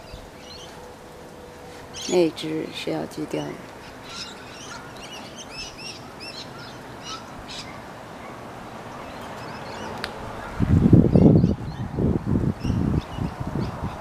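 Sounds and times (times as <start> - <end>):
small birds chirping: 1.8 - 2.5, 3.6 - 12.0, 12.6 - 14.0.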